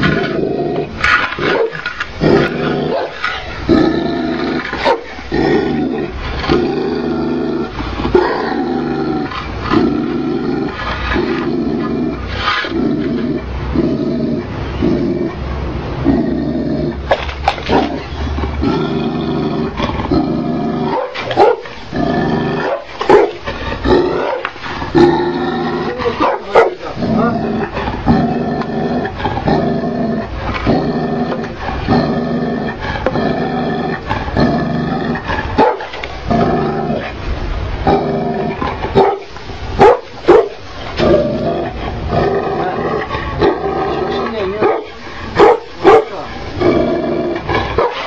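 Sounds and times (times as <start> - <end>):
dog growling: 0.0 - 48.0
deep dog barks: 1.2 - 1.8, 2.4 - 3.2, 4.7 - 5.1, 20.8 - 21.8, 22.6 - 24.5, 25.9 - 27.4, 35.5 - 35.9, 38.9 - 41.2, 44.2 - 46.3, 47.5 - 48.0.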